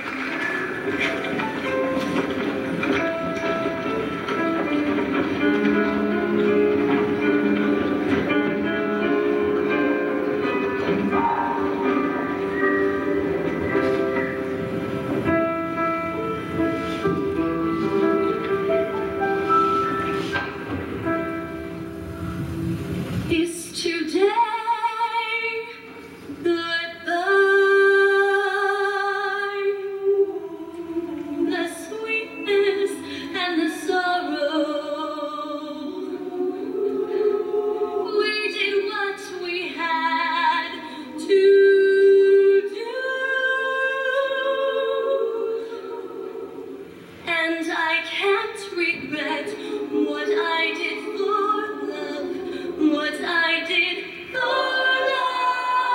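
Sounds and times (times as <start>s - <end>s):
women's choir singing: 0.8s - 22.0s, 26.6s - 55.9s
woman singing with vibrato: 23.3s - 55.9s.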